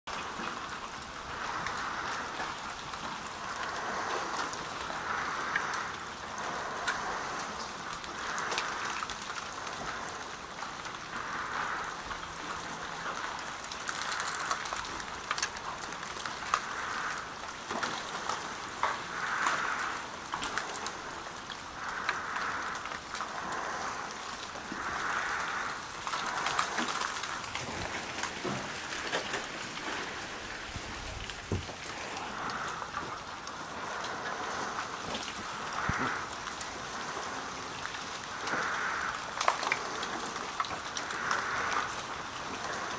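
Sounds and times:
meltwater dripping from trees: 0:00.1 - 0:42.9.

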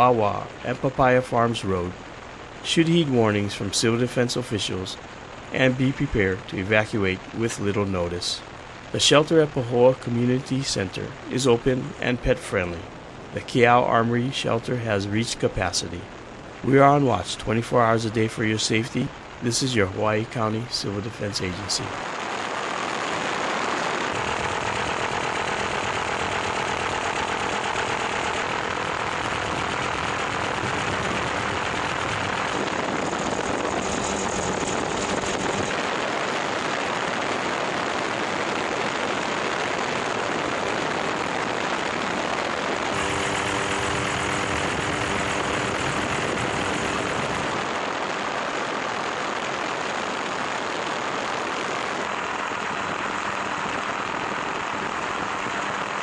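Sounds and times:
helicopter engine and rotor: 0:24.1 - 0:35.9, 0:42.9 - 0:47.7.

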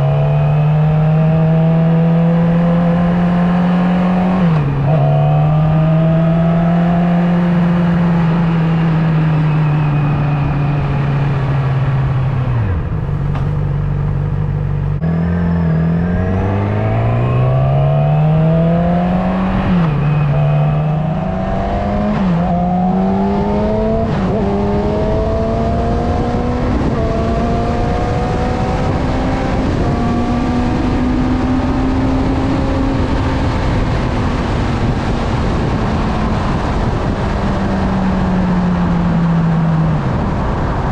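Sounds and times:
motorcycle engine accelerating: 0:00.0 - 0:40.9
wind noise: 0:15.0 - 0:40.9.

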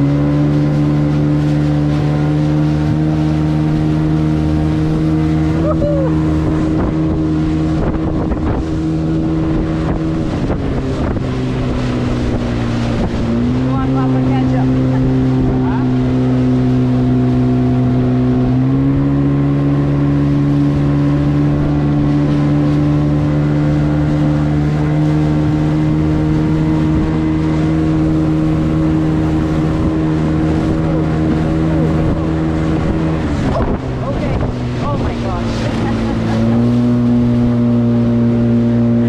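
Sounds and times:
rushing wind and water: 0:00.0 - 0:39.0
speedboat engine running hard: 0:00.0 - 0:39.0.

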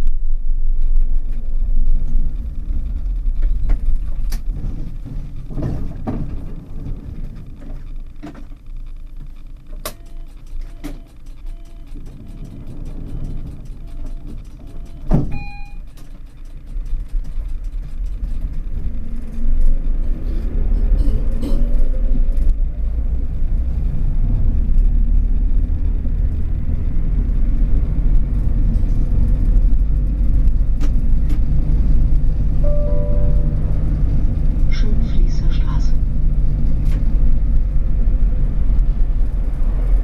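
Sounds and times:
tram click: 0:00.0 - 0:40.0
tram wheels rumbling on rails: 0:00.0 - 0:40.0
short beep: 0:13.8 - 0:15.9, 0:32.6 - 0:34.2.

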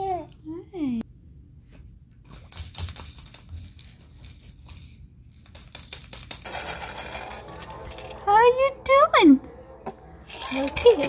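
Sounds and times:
plastic baby rattle shaken: 0:02.3 - 0:08.2, 0:10.3 - 0:11.0.

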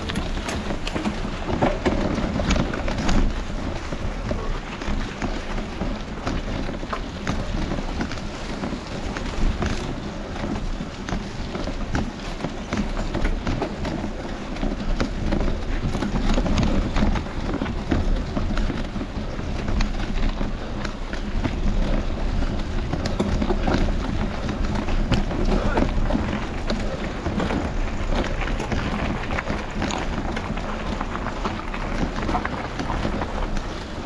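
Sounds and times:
bike tyres rumbling on dirt: 0:00.0 - 0:34.0.

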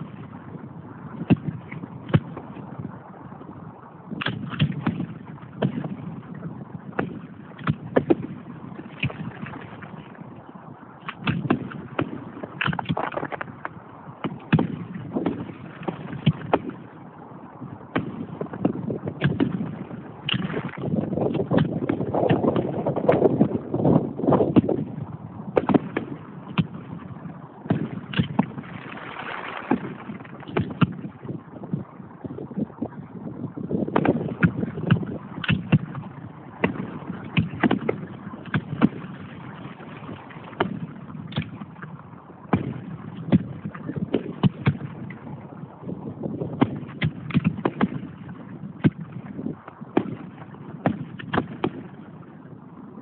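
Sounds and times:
fireworks bangs and pops: 0:04.2 - 0:06.1, 0:07.0 - 0:08.4, 0:11.1 - 0:16.8, 0:17.9 - 0:23.5, 0:25.5 - 0:26.9, 0:27.7 - 0:31.2, 0:33.9 - 0:39.1, 0:40.5 - 0:41.8, 0:42.5 - 0:45.3, 0:46.4 - 0:48.2, 0:48.8 - 0:51.9.

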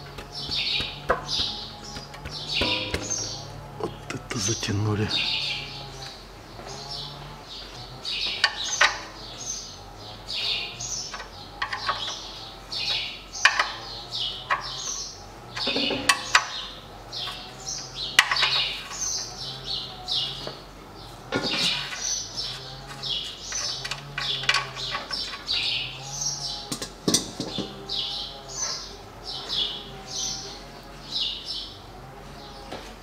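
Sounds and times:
tool clicks and knocks: 0:00.0 - 0:03.7
birds chirping: 0:00.0 - 0:33.0.

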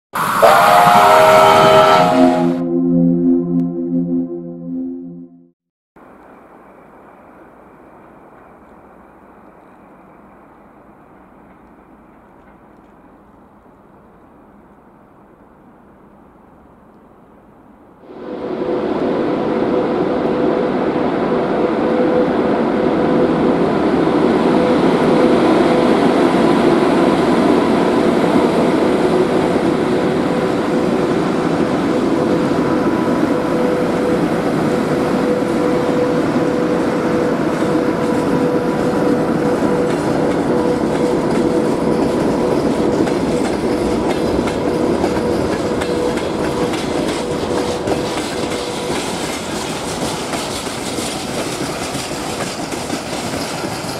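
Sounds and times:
steady tone: 0:01.6 - 0:05.6
train wheels clattering on rails: 0:33.6 - 0:53.9.

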